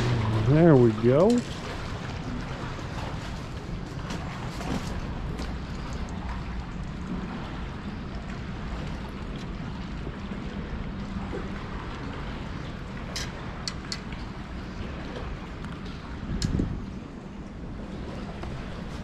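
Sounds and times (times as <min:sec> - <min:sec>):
wind on microphone: 0:15.8 - 0:19.0.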